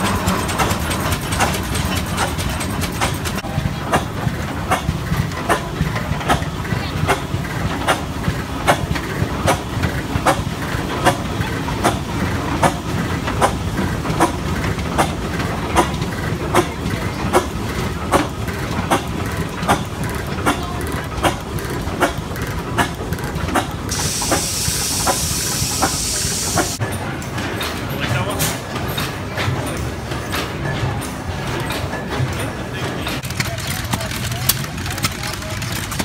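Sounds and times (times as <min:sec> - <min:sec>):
tractor engine running slowly: 0:00.0 - 0:26.8
high hiss: 0:23.9 - 0:26.8.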